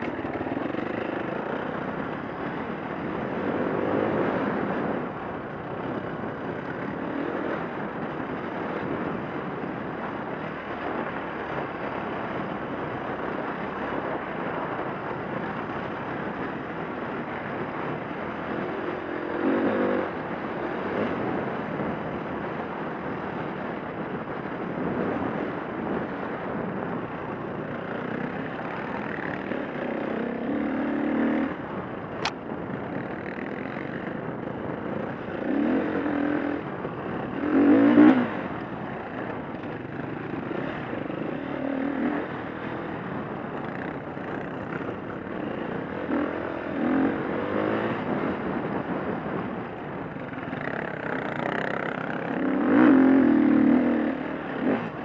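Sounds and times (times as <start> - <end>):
dirt bike engine revving: 34.9 - 48.9, 50.3 - 55.0.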